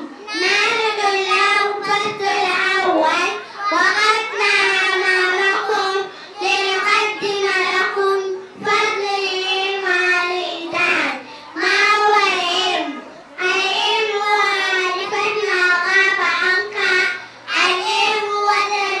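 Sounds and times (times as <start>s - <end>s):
children singing into a microphone: 0.0s - 19.0s.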